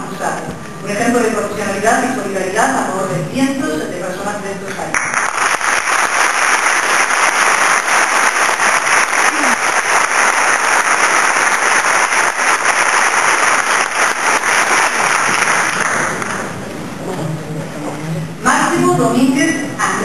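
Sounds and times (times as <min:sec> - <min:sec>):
audience applauding: 0:05.0 - 0:16.6.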